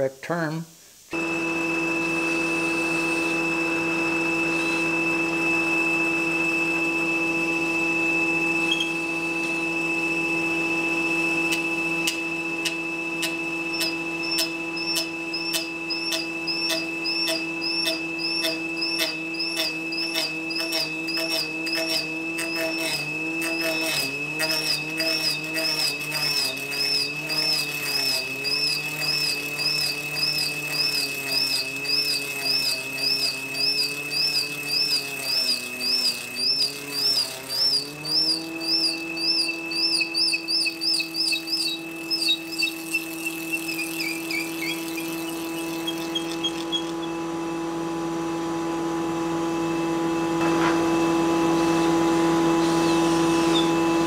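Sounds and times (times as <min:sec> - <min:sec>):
table saw running: 0:01.1 - 0:54.0
saw cutting rotating log: 0:01.2 - 0:48.2, 0:50.3 - 0:54.0.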